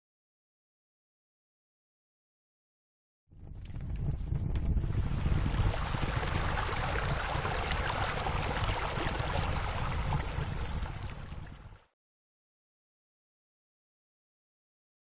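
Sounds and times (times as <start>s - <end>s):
low rumble: 3.3s - 11.8s
water splashing into pool: 5.1s - 11.8s.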